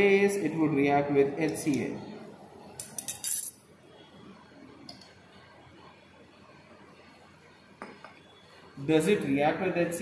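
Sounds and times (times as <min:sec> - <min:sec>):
glassware clinking: 0:07.8 - 0:08.2.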